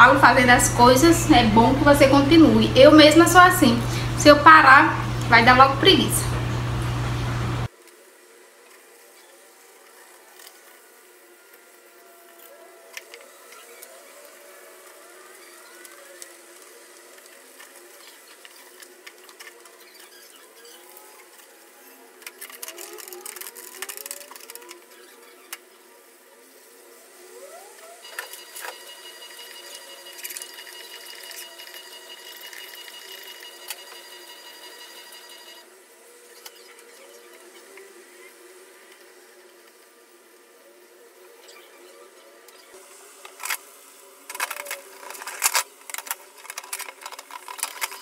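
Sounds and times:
high electronic tone: 28.0s - 35.7s.

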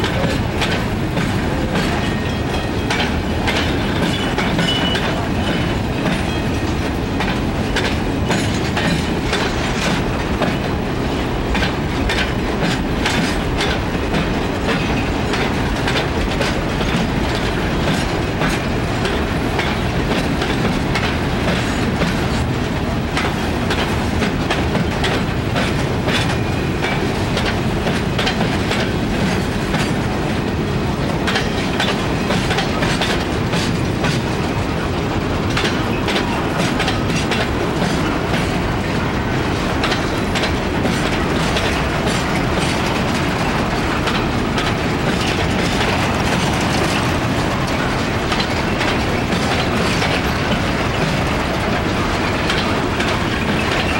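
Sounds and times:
freight train rumbling past: 0.0s - 53.9s
wheels clicking over rail joints: 0.0s - 53.9s.

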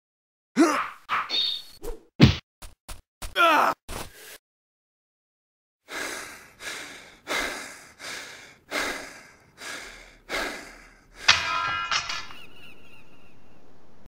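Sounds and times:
heavy breathing: 5.9s - 11.4s
sharp ringing bang: 11.3s - 12.6s.

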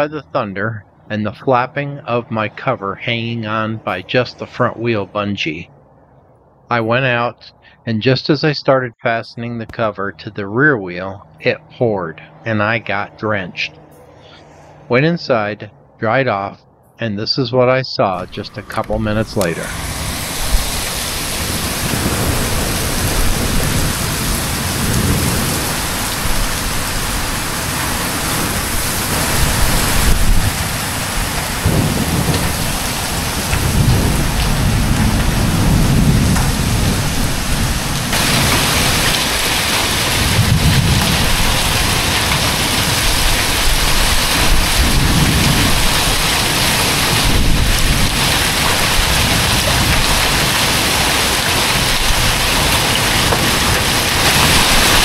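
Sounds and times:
heavy rain on pavement and vehicles: 18.2s - 55.0s
low rolling thunder: 18.2s - 55.0s.

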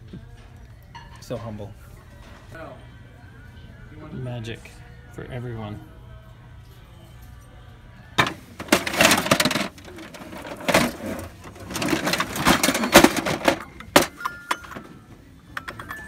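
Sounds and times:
hard objects clattering: 8.2s - 16.0s.

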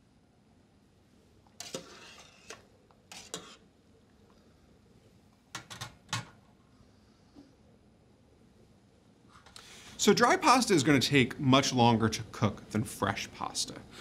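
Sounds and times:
metal mesh scraping pot: 1.6s - 3.6s.

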